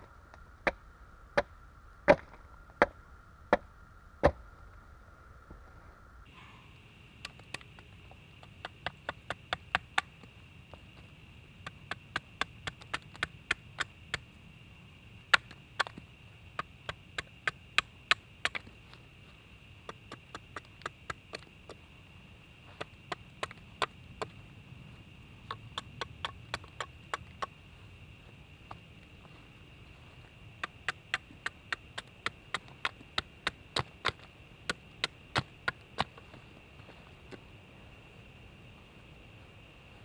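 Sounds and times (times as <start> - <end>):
axe chopping wooden board: 2.1 - 2.3.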